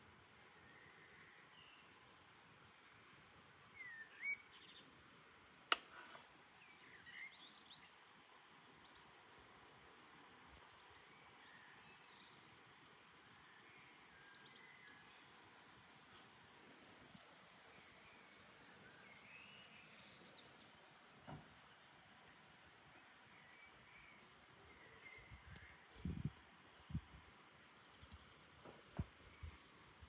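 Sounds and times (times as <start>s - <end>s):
faint steady background noise: 0.0s - 30.0s
sharp click: 5.7s - 6.3s
small birds chirping: 22.0s - 30.0s.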